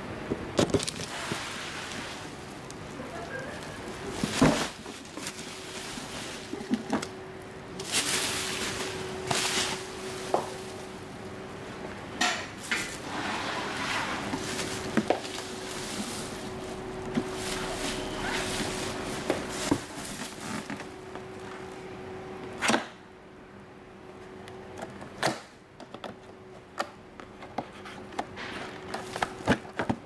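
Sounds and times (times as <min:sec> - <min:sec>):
faint steady hum: 0:00.0 - 0:30.0
bubble wrap rustling: 0:00.5 - 0:11.9, 0:12.5 - 0:21.8, 0:28.7 - 0:30.0.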